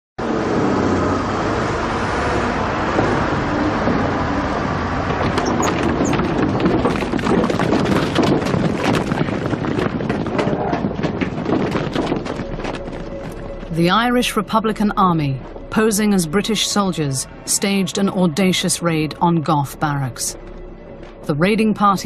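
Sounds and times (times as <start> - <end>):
vehicle-like rumble: 0.2 - 17.5
clatter of quick knocks: 5.0 - 13.1.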